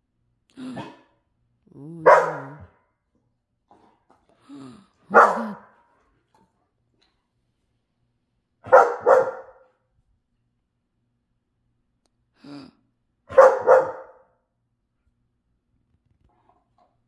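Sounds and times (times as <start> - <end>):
dog barking: 2.0 - 2.8, 5.1 - 5.8, 8.6 - 9.8, 13.3 - 14.3.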